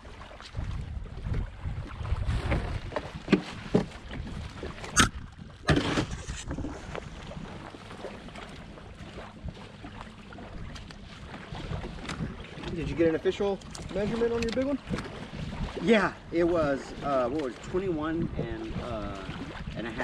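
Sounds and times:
water slapping against kayak hull: 0.0 - 20.0
wind buffeting microphone: 0.0 - 20.0.

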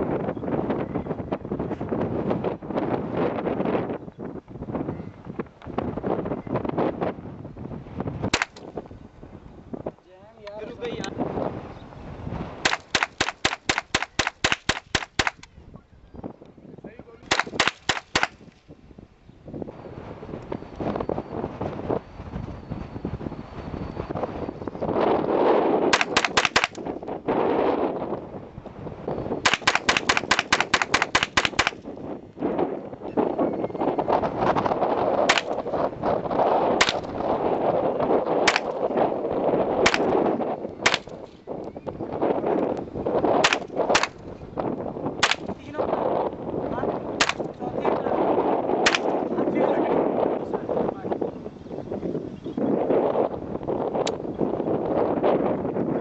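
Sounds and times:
rifle firing rapid shots: 12.6 - 15.4, 17.3 - 18.4, 25.9 - 26.8, 29.4 - 31.8, 39.9 - 40.1, 48.9 - 49.1.

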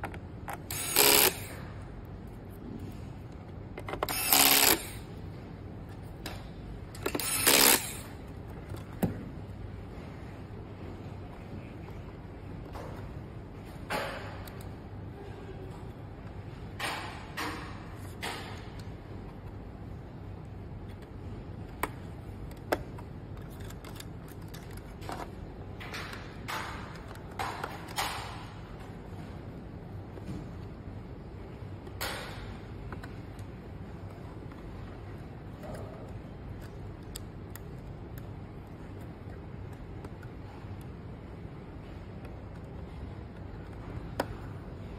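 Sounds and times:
steady low hum: 0.0 - 44.9
electric screwdriver whirring: 0.7 - 1.6, 4.0 - 5.0, 7.1 - 8.1
cables and plastic parts rustling: 18.0 - 28.2.

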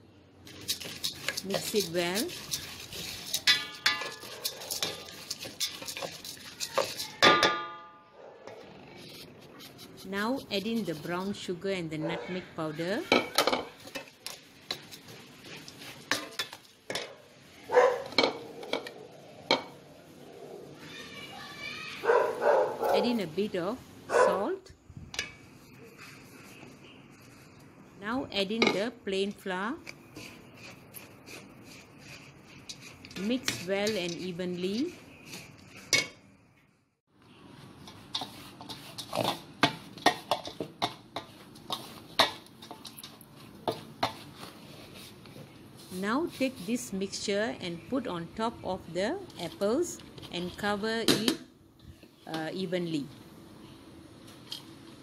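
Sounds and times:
rustle of oats: 0.5 - 7.2, 25.6 - 27.7, 43.2 - 47.0
spatula scraping metal bowl: 0.5 - 7.4, 8.6 - 16.6, 28.6 - 36.1, 37.9 - 40.2.

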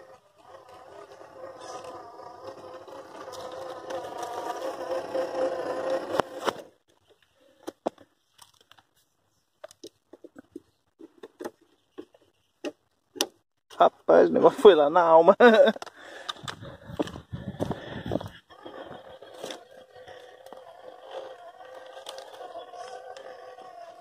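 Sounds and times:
electric motor whining: 0.0 - 6.7, 16.4 - 24.0.

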